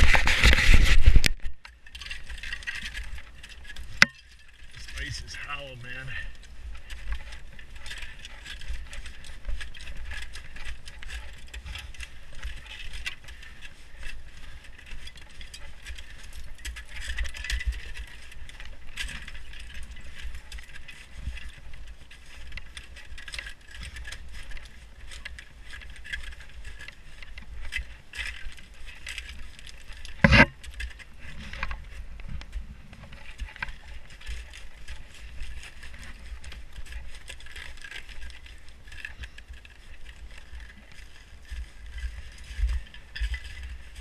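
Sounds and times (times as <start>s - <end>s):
climbing hardware jingling: 1.6s - 32.4s, 33.0s - 44.0s.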